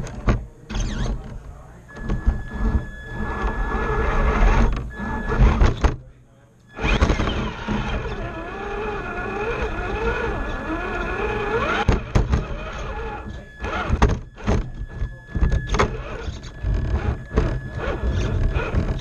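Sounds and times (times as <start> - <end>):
electric motor and gears whining: 0.0 - 6.0, 6.7 - 19.0
toy truck knocks and clatter: 11.6 - 12.5.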